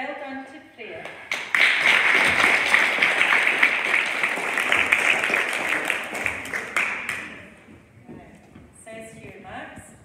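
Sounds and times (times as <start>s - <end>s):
audience applauding: 1.3s - 7.6s.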